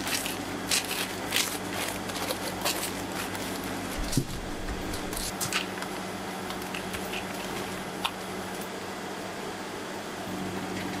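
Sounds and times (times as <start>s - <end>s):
paper and plastic tubs crinkling: 0.0s - 7.7s
low machine hum: 0.0s - 11.0s.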